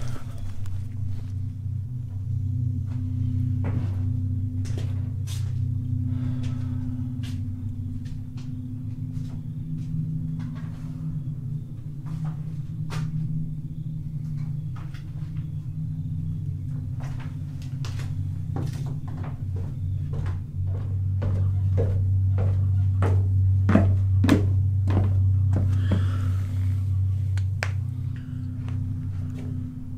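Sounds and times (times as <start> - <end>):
low steady drone: 0.0 - 29.9
knocks and creaks: 16.7 - 26.2.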